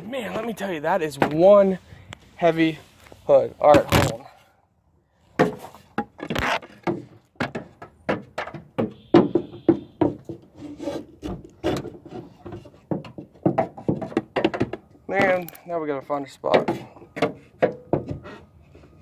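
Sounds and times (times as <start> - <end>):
wooden board knocking on metal: 5.4 - 10.5, 11.6 - 15.4, 16.5 - 18.3.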